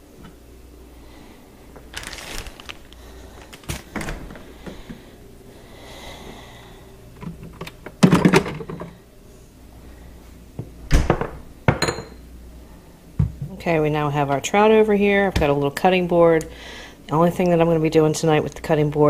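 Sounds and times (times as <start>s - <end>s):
refrigerator door opening: 1.9s - 5.0s, 10.9s - 11.4s.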